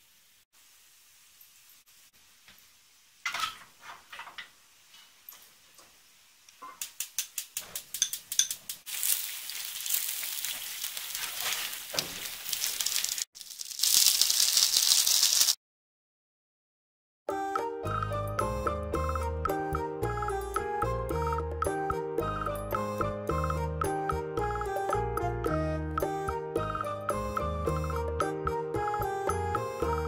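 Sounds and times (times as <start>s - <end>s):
steady hiss: 0.0s - 7.9s
dumplings sizzling in a pan: 0.0s - 15.6s.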